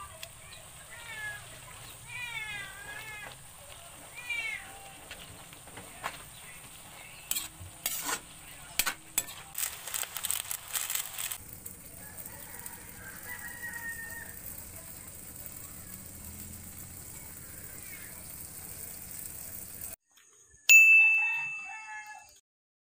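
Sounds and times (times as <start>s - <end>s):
metal spatula scraping a pan: 4.9s - 11.4s
bell-like ding: 20.7s - 22.1s.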